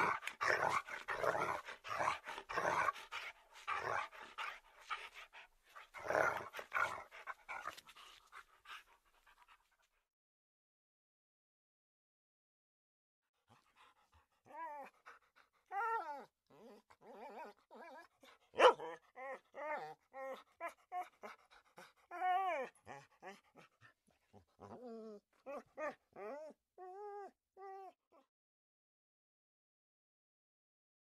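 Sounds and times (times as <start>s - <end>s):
dog whining and whimpering: 0.0s - 5.2s, 14.4s - 28.3s.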